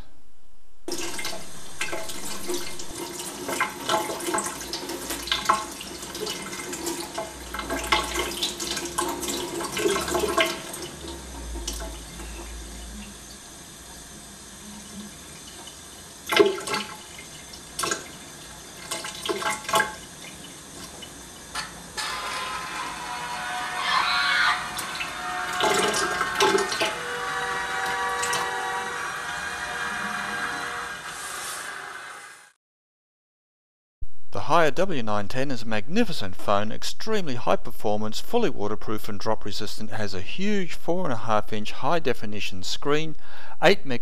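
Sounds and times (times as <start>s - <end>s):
tap water splashing into sink: 0.9s - 13.4s, 14.9s - 21.8s, 25.6s - 26.9s.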